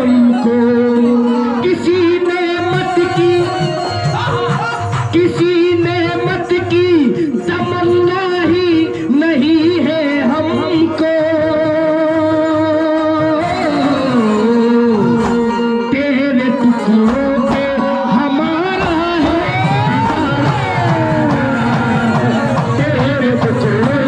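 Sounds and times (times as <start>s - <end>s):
person singing: 0.0s - 24.0s.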